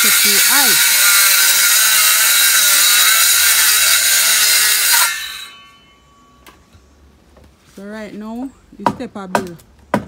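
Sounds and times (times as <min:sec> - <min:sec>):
power saw running: 0:00.0 - 0:06.2.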